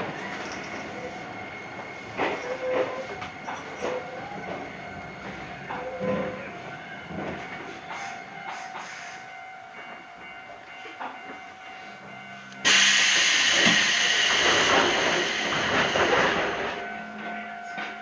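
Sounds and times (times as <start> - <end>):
electric train humming: 0.0 - 18.0
compressed air hiss: 12.7 - 16.1.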